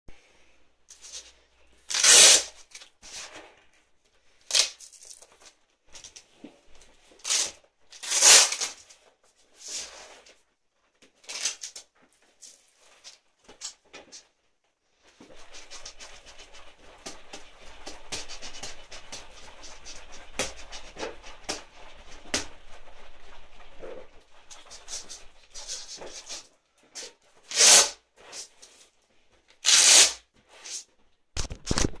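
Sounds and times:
boxing gloves swishing: 0:15.1 - 0:28.7.

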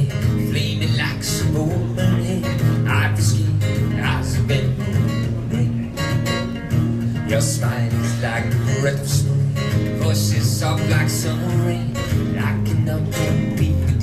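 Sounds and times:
steady low bass notes: 0:00.0 - 0:14.0
strummed acoustic guitar: 0:00.0 - 0:14.0
person singing: 0:07.2 - 0:14.0.

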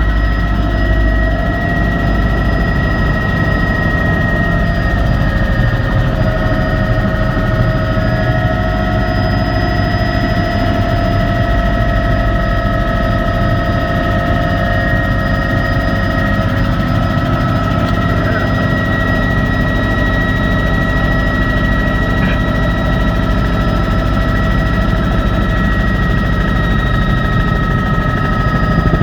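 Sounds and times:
constant whining tones: 0:00.0 - 0:29.0
helicopter engine and rotor drone: 0:00.0 - 0:29.0.

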